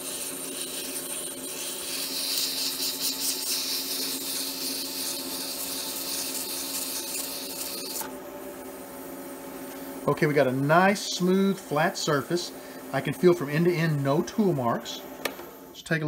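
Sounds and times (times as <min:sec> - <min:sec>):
sandpaper sanding hiss: 0:00.0 - 0:07.8
lathe humming: 0:00.0 - 0:16.0.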